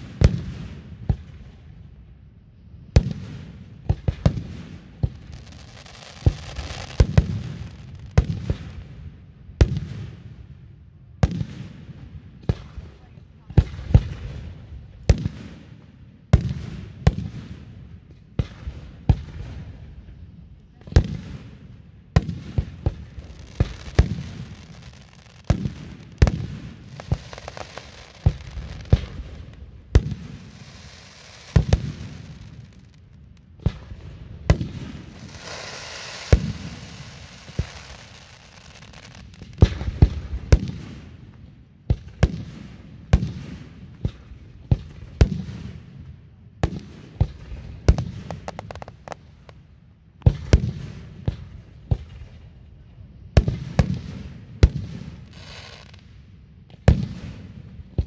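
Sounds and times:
crackling hiss of fireworks: 0.0 - 58.0
fireworks booming: 3.0 - 8.7, 22.2 - 41.2, 46.6 - 52.2.

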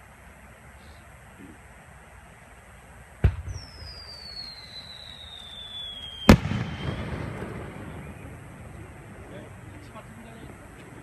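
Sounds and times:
firework mortar launch thump: 3.2 - 4.0, 6.2 - 8.8
firework bang: 3.2 - 9.5
firework whistle sliding down: 3.5 - 7.2
rumbling echo: 6.3 - 11.0.

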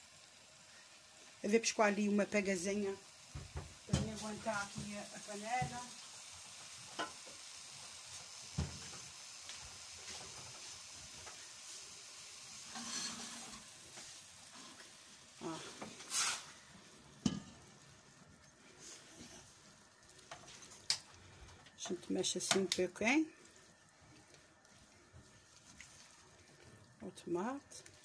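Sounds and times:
vegetables sizzling in oil: 0.0 - 28.0
spatula scraping a pan: 12.6 - 17.7, 18.8 - 19.6.

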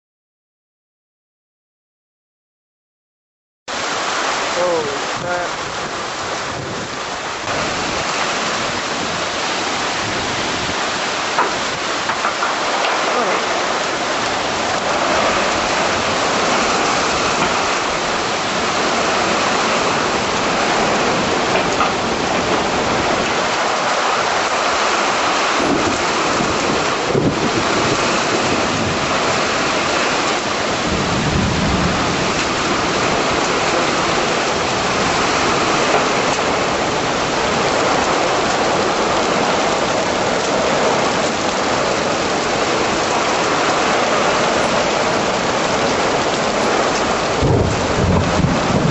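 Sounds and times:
heavy rain pouring: 3.7 - 48.9
low rumble of thunder: 25.6 - 29.6, 30.4 - 38.4, 44.5 - 48.9.

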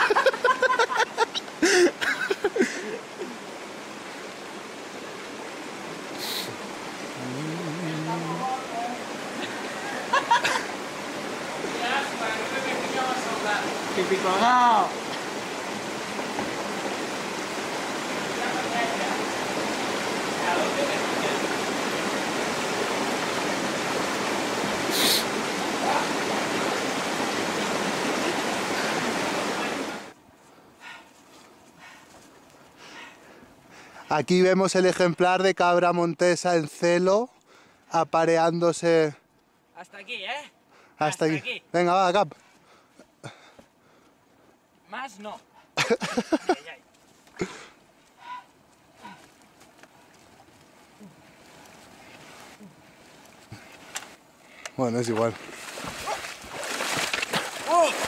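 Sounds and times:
mountain stream rushing: 0.0 - 30.2, 44.2 - 58.0
short hiss: 6.1 - 6.6, 24.9 - 25.3
person's voice: 7.2 - 9.0.

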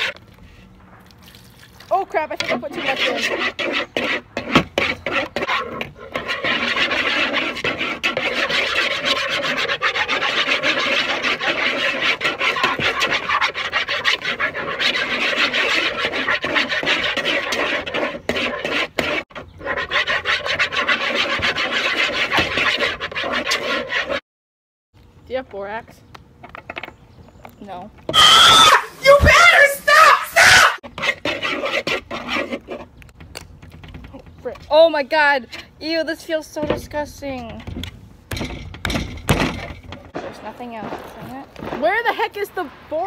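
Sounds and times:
spoon scraping plastic bowl: 2.2 - 24.2.

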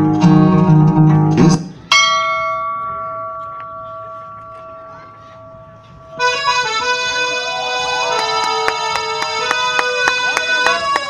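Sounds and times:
bell-like chime ringing: 1.9 - 7.5
music sustained chord: 2.0 - 9.8.

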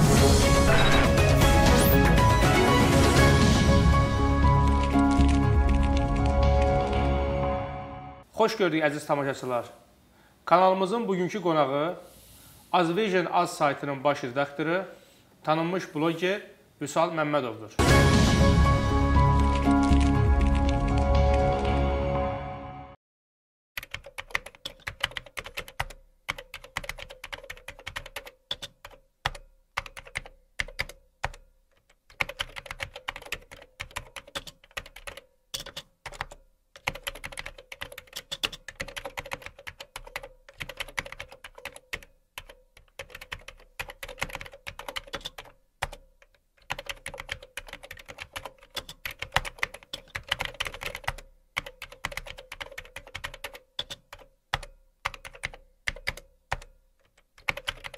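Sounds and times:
keyboard key clicks: 35.6 - 42.5, 46.6 - 57.9.

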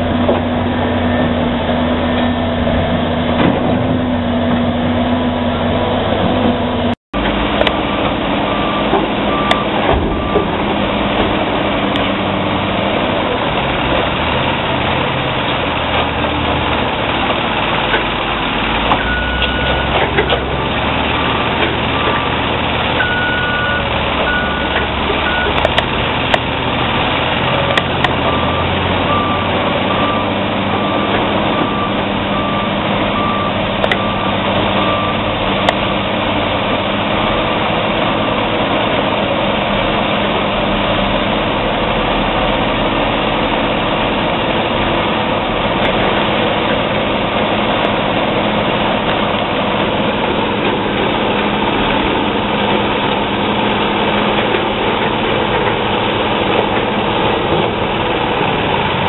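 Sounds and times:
bulldozer diesel engine under load: 0.0 - 59.0
reversing alarm beeping: 7.8 - 10.6, 19.0 - 20.0, 21.2 - 25.7, 28.2 - 35.4.

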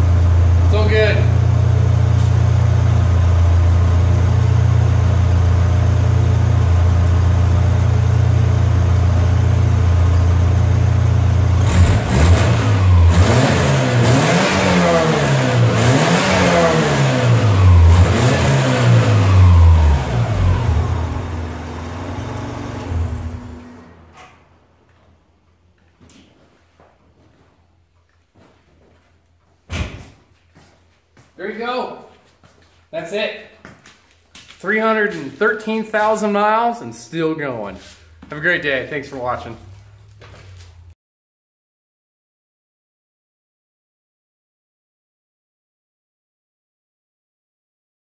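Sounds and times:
car engine idling and revving: 0.0 - 24.3.

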